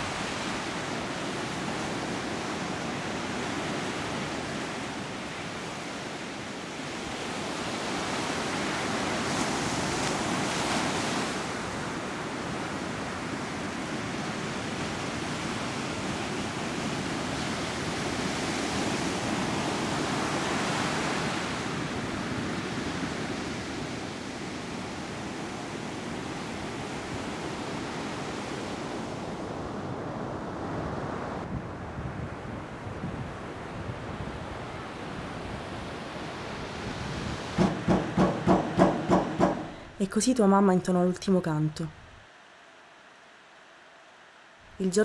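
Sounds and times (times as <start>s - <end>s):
sea surf rushing: 0.0s - 31.5s.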